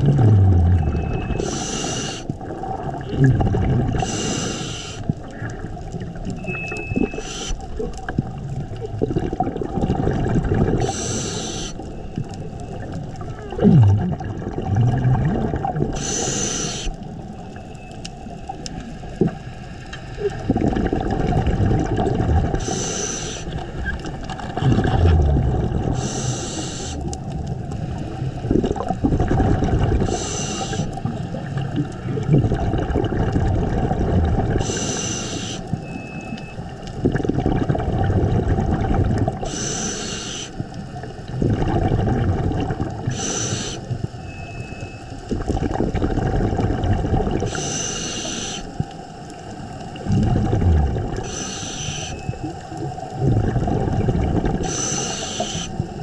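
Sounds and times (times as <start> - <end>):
bubbling rumble on exhale: 0.0 - 19.5, 20.2 - 56.0
regulator hiss on inhale: 1.4 - 2.3, 4.0 - 5.1, 7.0 - 7.8, 10.8 - 11.9, 16.0 - 17.0, 22.5 - 23.7, 25.9 - 27.1, 30.0 - 31.1, 34.6 - 35.8, 39.4 - 40.8, 43.0 - 44.1, 47.4 - 48.9, 51.1 - 52.4, 54.6 - 56.0.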